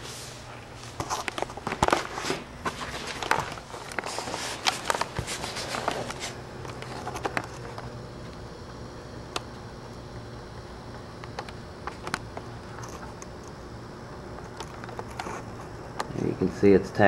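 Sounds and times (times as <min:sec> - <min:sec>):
steady low hum: 0:00.0 - 0:17.0
camera handling scuffs and clicks: 0:00.9 - 0:07.9.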